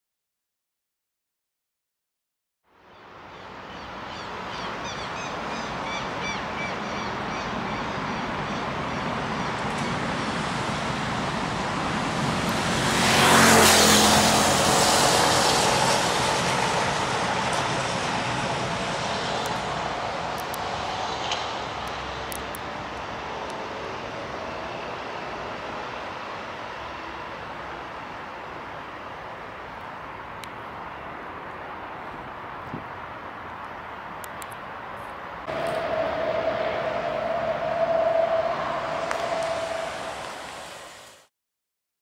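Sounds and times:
steady traffic noise: 2.6s - 41.3s
large motor vehicle passing: 9.2s - 22.4s, 35.4s - 41.3s.

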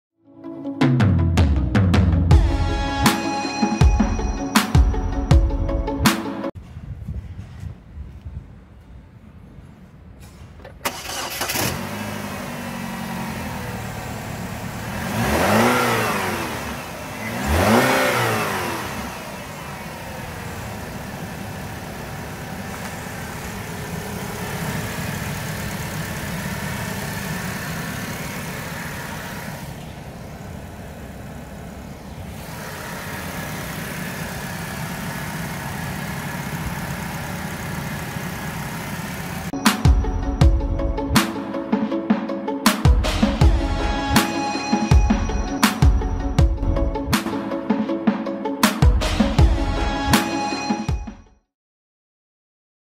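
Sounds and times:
car engine idling: 10.8s - 39.6s
car engine starting and revving: 10.8s - 39.6s.

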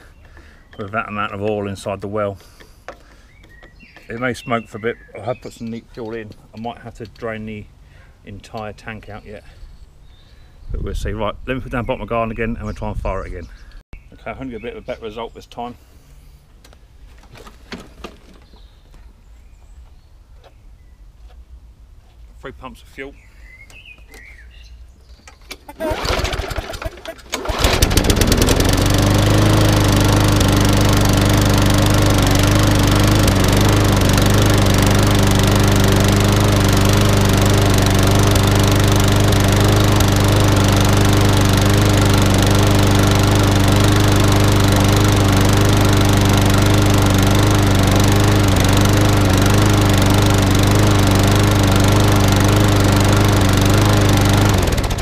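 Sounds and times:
lawnmower engine running: 25.5s - 55.0s.

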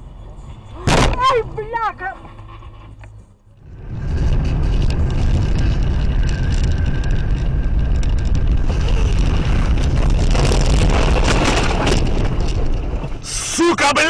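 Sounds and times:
tyre and road noise inside car: 0.0s - 14.0s.

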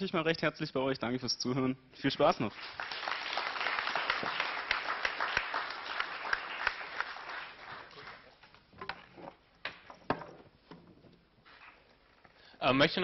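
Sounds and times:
audience applauding: 2.4s - 8.4s.

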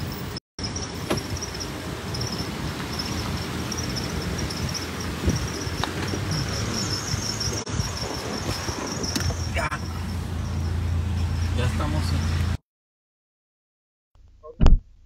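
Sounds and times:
crickets chirping: 0.6s - 12.4s.

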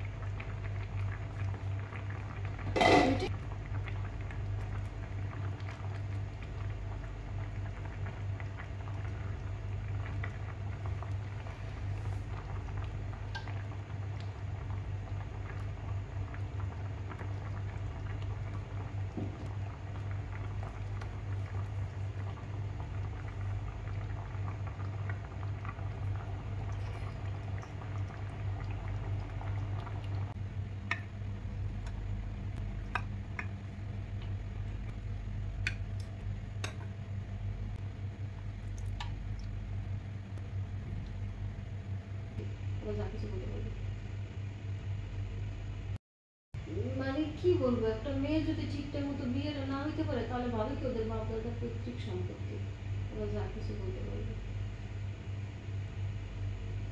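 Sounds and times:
sauce bubbling in a pan: 0.0s - 42.9s
steady low hum: 0.0s - 46.0s, 46.6s - 56.9s.

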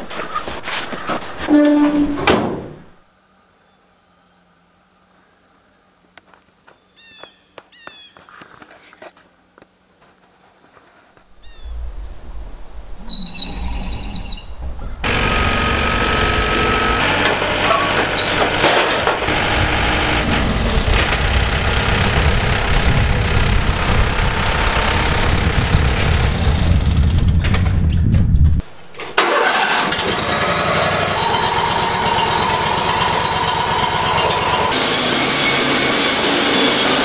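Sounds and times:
band sawmill whining: 11.2s - 27.3s, 28.6s - 37.0s
tractor engine running: 14.4s - 27.8s, 28.5s - 37.0s.

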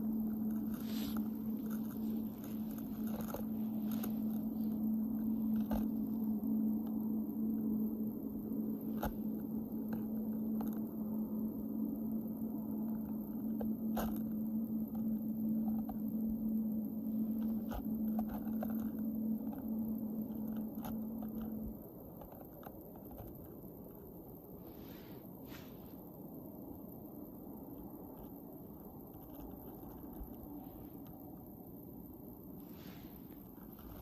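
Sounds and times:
sharp crunches and clicks: 0.0s - 7.0s, 8.8s - 11.0s, 13.0s - 16.1s, 17.2s - 23.8s
steady low hum: 0.0s - 34.0s.

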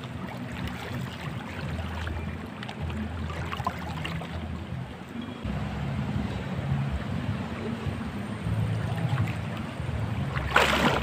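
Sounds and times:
river water rushing and splashing: 0.0s - 5.1s, 8.1s - 11.0s
low steady rumble: 0.0s - 11.0s.

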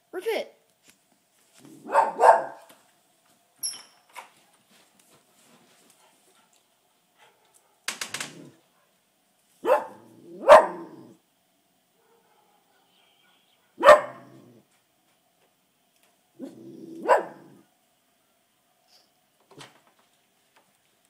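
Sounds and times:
small dog barking: 1.7s - 2.7s, 9.6s - 11.1s, 12.0s - 14.6s, 16.4s - 17.6s.

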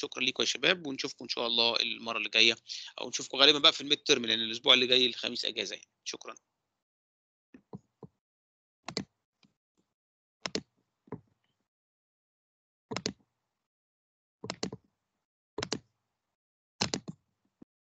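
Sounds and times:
computer mouse clicks: 10.4s - 10.7s, 14.4s - 14.8s, 16.8s - 17.2s.

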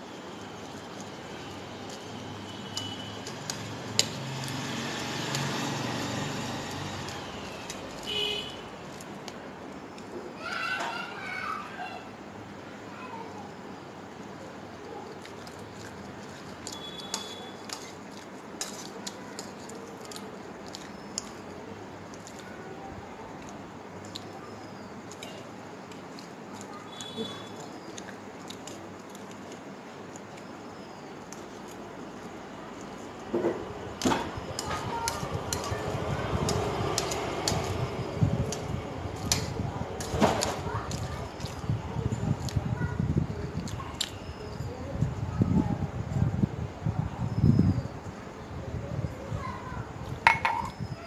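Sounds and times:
person chewing noodles: 15.1s - 21.5s, 25.9s - 31.8s, 41.0s - 41.6s
metal fork tapping plate: 50.3s - 50.8s.

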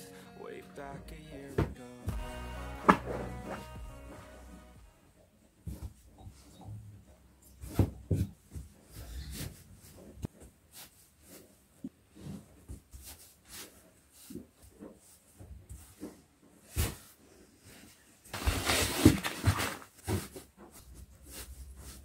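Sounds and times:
rustling and scraping: 2.6s - 4.8s, 5.4s - 22.0s
clothes rustling: 2.8s - 4.8s.

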